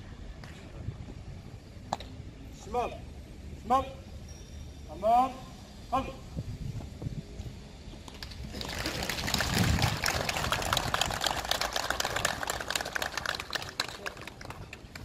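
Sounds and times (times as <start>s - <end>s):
crowd clapping: 8.2s - 15.0s.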